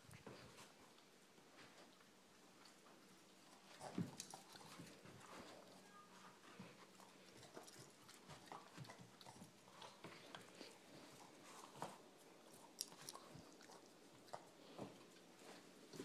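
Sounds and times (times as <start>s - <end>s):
puppy licking: 6.8s - 16.0s.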